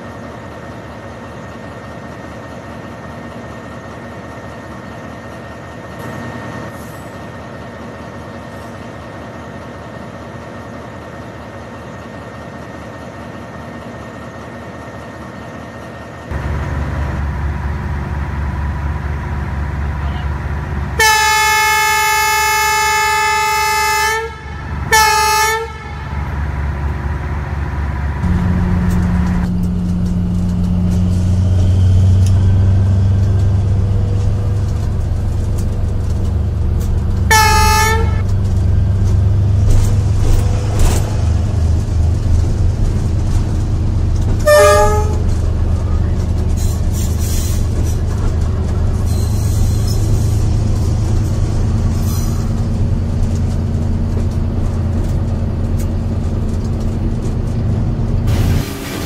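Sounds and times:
approaching train rumble: 0.0 - 59.0
train horn blasts: 20.9 - 26.4, 37.2 - 38.4, 44.4 - 45.4.

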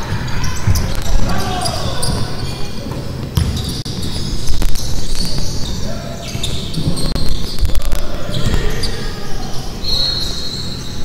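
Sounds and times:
basketball bouncing on wooden court: 0.0 - 7.6.

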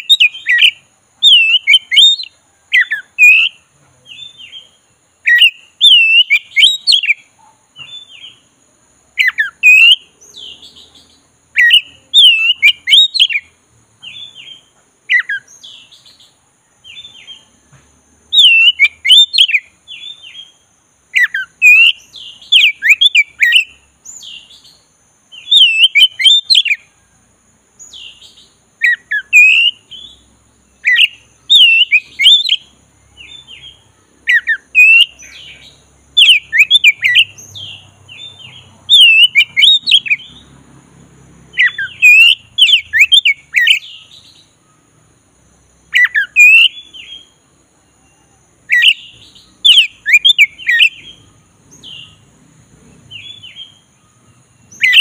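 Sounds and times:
bird singing whistled phrases: 0.0 - 8.4, 9.2 - 17.5, 18.3 - 26.9, 27.8 - 40.4, 41.5 - 44.6, 45.9 - 52.2, 53.1 - 55.0.

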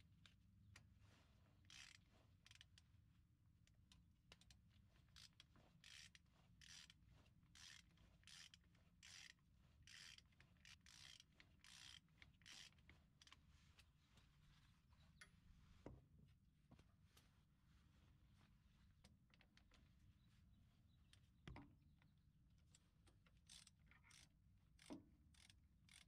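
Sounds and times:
ratchet wrench clicking: 1.7 - 2.6, 5.2 - 7.0, 7.6 - 9.3, 9.9 - 12.8, 23.4 - 26.0.

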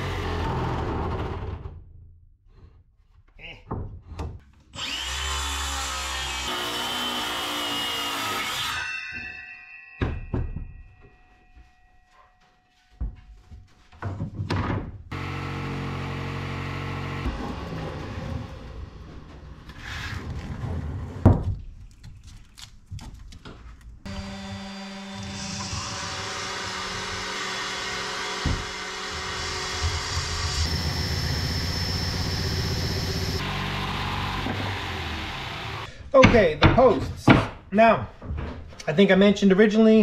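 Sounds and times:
wooden knocks and thuds: 3.6 - 4.5, 13.0 - 15.1, 28.4 - 28.8, 36.2 - 38.8
circular saw cutting wood: 4.7 - 9.9, 15.1 - 18.9, 24.1 - 35.9
drill with sanding drum running: 4.8 - 8.2, 24.1 - 35.9
small power tool running: 4.8 - 8.4, 15.1 - 17.8, 24.1 - 35.9.

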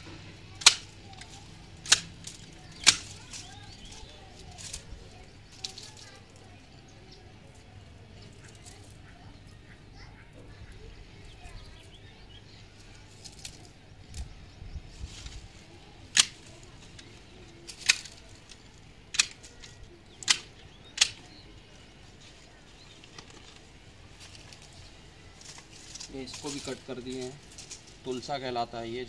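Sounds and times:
hand shears snipping stems: 0.5 - 6.0, 15.1 - 21.4.

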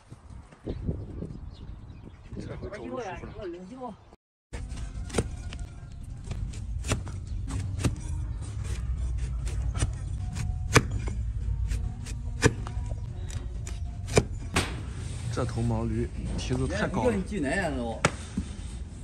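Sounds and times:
hoof knife cracking and scraping: 4.6 - 14.7.

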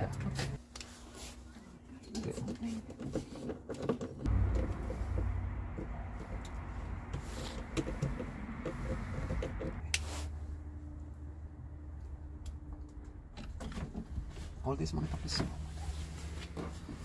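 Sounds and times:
steady low rumble: 4.3 - 13.4.

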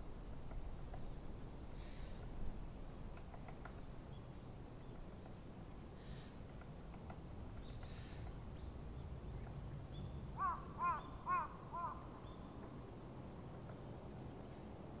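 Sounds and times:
faint outdoor rumble: 0.0 - 15.0
crow cawing: 10.4 - 12.1.

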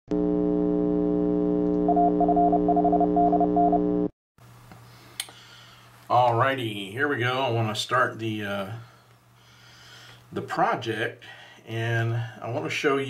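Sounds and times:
electronic hum: 0.1 - 4.1
click: 5.2 - 5.4.

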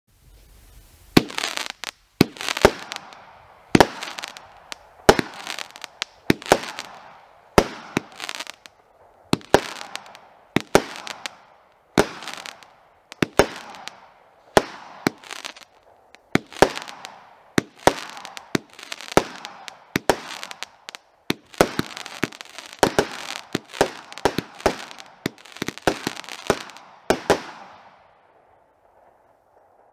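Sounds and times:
fireworks bangs and crackles: 0.8 - 29.9.

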